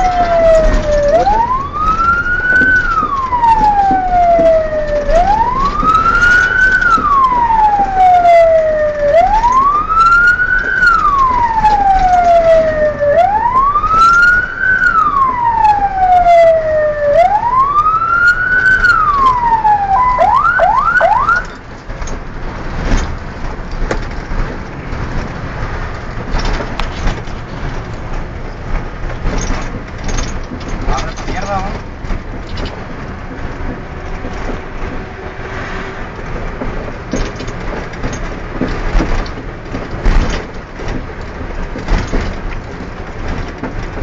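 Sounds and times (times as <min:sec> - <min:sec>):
siren yelps: 0:00.0 - 0:21.6
fire engine wail siren: 0:00.0 - 0:21.7
truck engine and road noise: 0:00.0 - 0:44.0.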